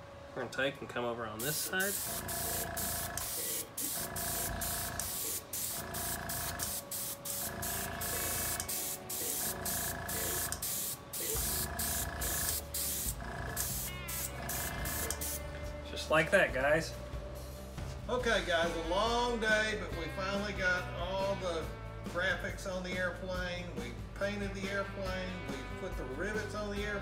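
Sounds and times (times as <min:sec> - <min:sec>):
airbrush spraying hiss: 0:01.4 - 0:15.5.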